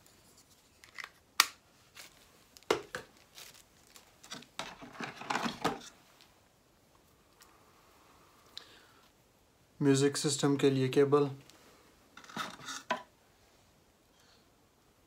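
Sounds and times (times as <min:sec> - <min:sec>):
plastic items rustling and clicking: 0:00.4 - 0:06.0.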